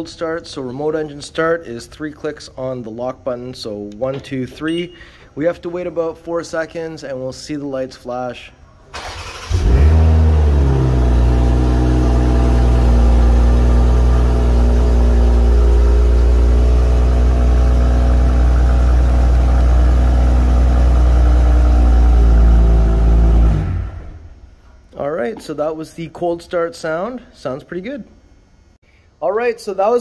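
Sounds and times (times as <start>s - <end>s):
car engine idling: 9.0s - 24.3s.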